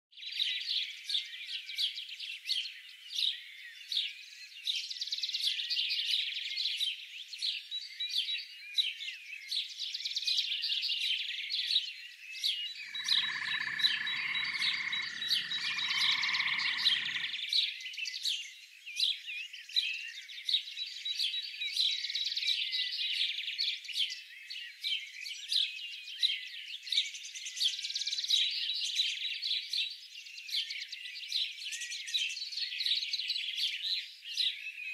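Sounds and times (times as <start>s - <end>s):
small birds chirping: 0.2s - 34.9s
lower bird call: 12.8s - 17.5s.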